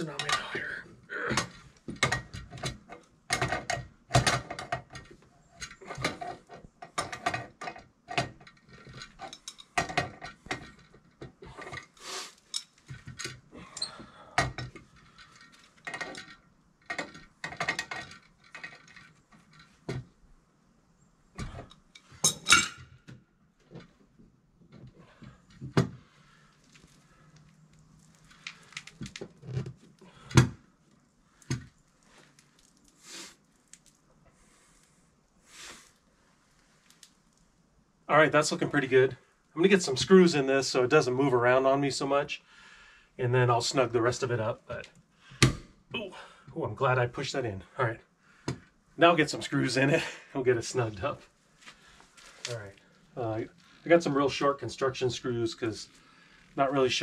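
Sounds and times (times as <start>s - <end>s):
metal clicks and clanks: 1.3s - 20.0s.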